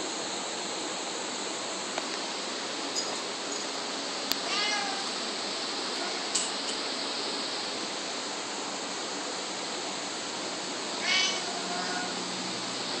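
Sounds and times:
steady hiss: 0.0s - 13.0s
cat meowing: 4.4s - 5.1s, 11.0s - 12.2s.

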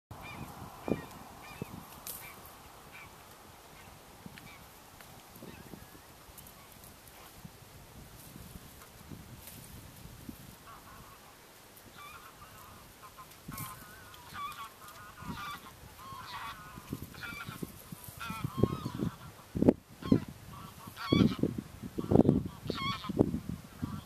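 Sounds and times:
geese honking: 0.2s - 4.7s, 10.6s - 23.2s, 23.8s - 24.0s.

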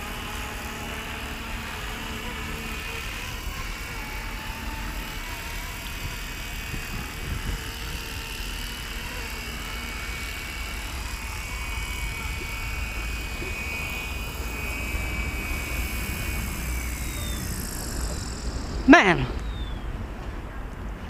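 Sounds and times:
rc helicopter rotor whine: 0.0s - 21.0s
wind rumble on microphone: 5.8s - 8.6s.

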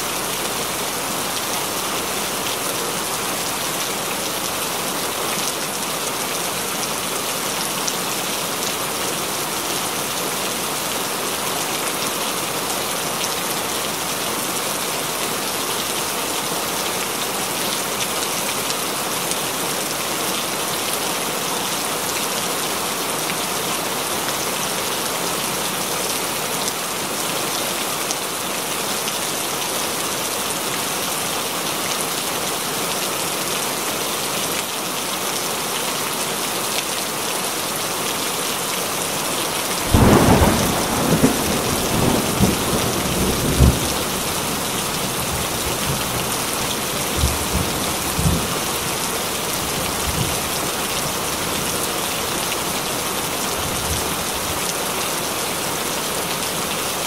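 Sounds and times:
steady rain falling: 0.0s - 57.0s
thunder crack and rumble: 39.9s - 45.2s.

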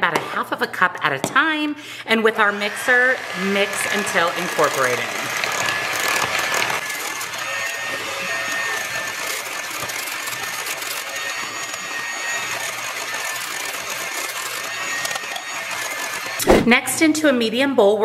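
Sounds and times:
electric mixer whining: 2.1s - 16.5s.

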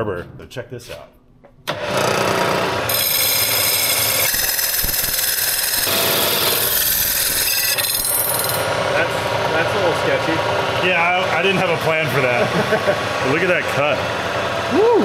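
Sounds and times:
saw blade cutting workpiece: 1.7s - 14.7s
milling machine saw whine: 1.7s - 15.0s.

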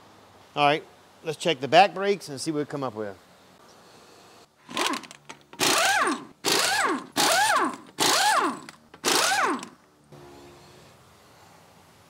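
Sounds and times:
pneumatic impact wrench bursts: 4.6s - 9.8s.

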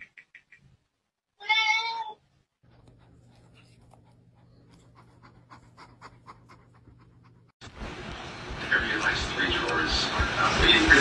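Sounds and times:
cat panting: 2.6s - 7.6s.

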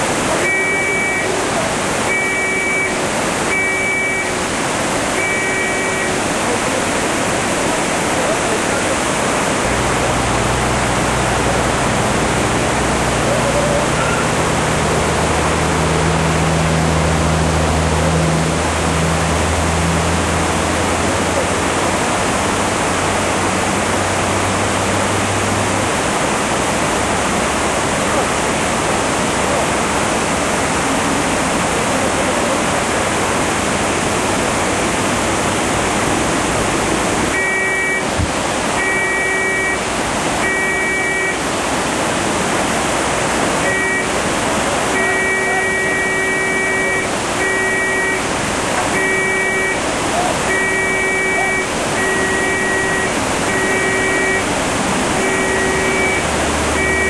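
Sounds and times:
floodwater rushing: 0.0s - 57.0s
low engine drone: 0.0s - 57.0s
electronic beeping: 0.4s - 1.4s, 2.1s - 4.4s, 5.2s - 6.2s, 37.3s - 38.0s, 38.8s - 39.8s, 40.4s - 41.4s, 49.0s - 49.8s, 50.5s - 54.5s, 55.2s - 57.0s.

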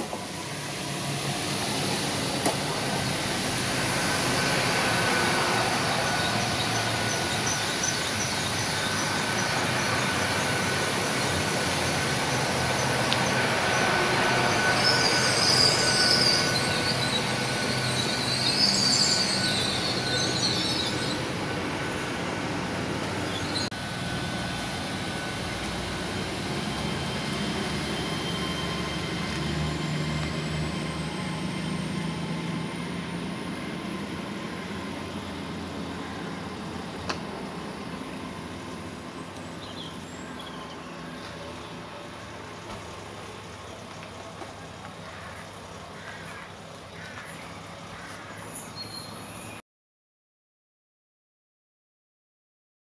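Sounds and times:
approaching train whine: 0.0s - 49.6s
passenger train rolling with whine: 0.0s - 49.6s
train wheels squealing: 0.2s - 36.9s.

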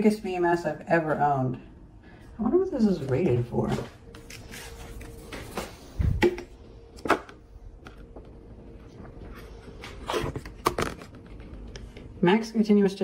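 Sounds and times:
faint steady hum: 0.0s - 13.0s
paper rustling: 3.3s - 6.0s.

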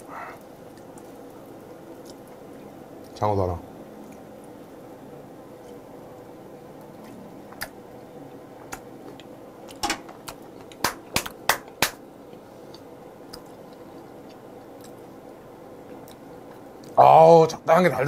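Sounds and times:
person clapping hands: 10.3s - 12.0s.

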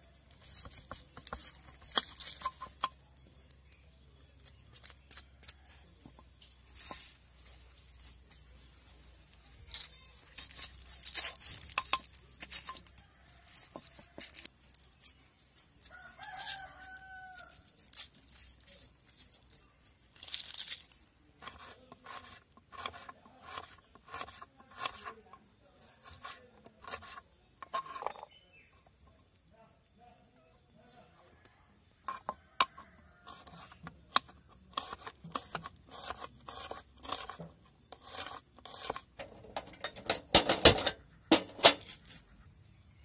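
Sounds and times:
onion skins crackling and tearing: 14.2s - 25.1s.

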